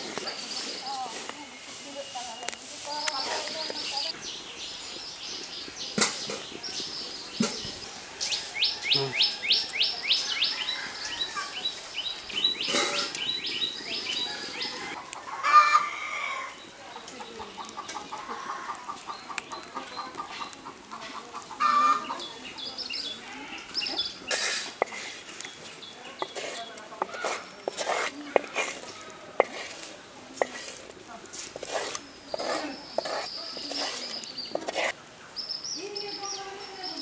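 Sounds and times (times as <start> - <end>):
small birds chirping: 0.0 - 37.0
chickens clucking: 12.3 - 22.4.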